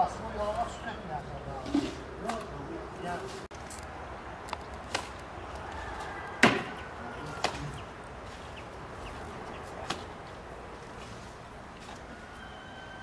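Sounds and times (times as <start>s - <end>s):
sharp chopping knocks: 6.4s - 6.7s, 7.4s - 7.7s.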